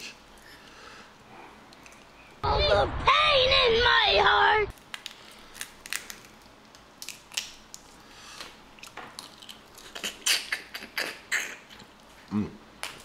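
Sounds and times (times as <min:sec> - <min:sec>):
crawfish shells cracking: 0:04.7 - 0:10.2
wet eating sounds: 0:04.9 - 0:13.0.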